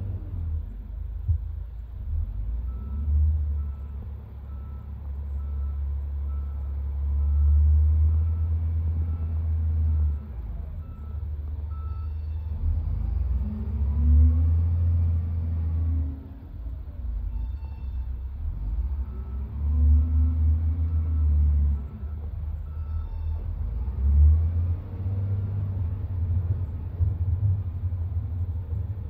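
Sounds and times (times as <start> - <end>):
diesel engine droning: 0.0 - 29.0
reversing alarm beeping: 2.7 - 13.0, 17.3 - 23.7.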